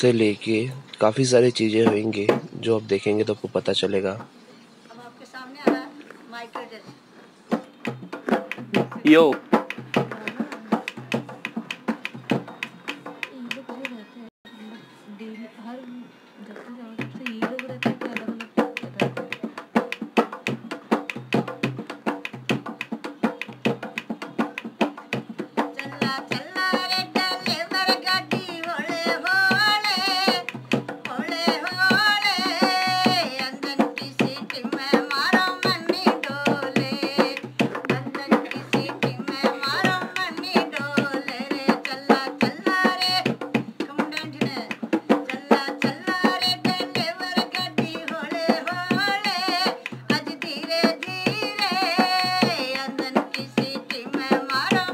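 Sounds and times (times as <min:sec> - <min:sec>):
hand drum fast rhythm: 0:01.6 - 0:02.6, 0:07.5 - 0:14.1, 0:17.0 - 0:54.9
person singing: 0:25.8 - 0:43.2.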